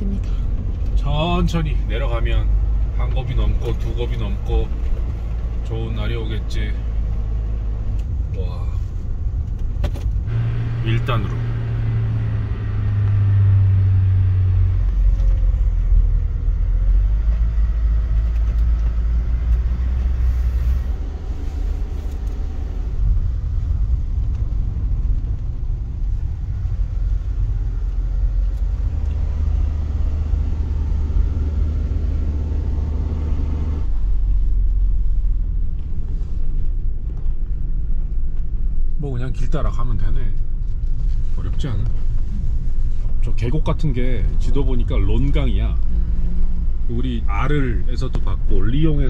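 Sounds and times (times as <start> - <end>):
road rumble: 0.0 - 49.0
van engine droning low: 0.0 - 49.0.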